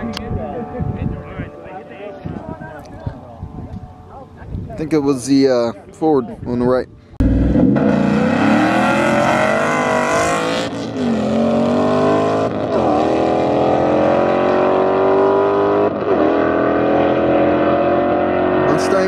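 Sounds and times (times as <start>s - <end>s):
car engines accelerating hard: 7.2s - 19.0s.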